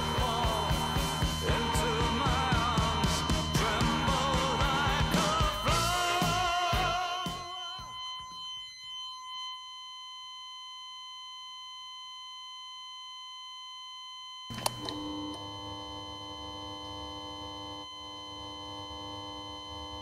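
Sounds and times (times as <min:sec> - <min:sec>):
rock music with singing: 0:00.0 - 0:08.4
long electronic tone: 0:00.0 - 0:20.0
lower steady electronic tone: 0:00.0 - 0:20.0.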